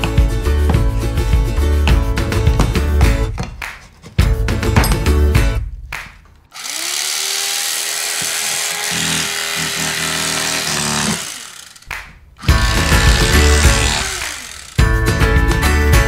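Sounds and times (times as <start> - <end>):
power tool motor whining: 6.5 - 14.9.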